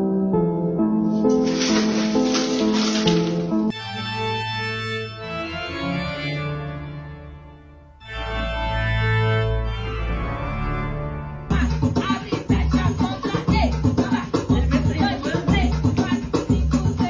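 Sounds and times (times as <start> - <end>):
organ chords: 3.7 - 11.5.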